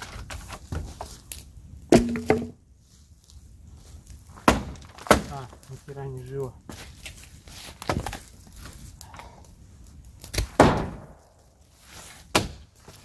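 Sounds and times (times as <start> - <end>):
wooden boards knocking: 1.9 - 2.6.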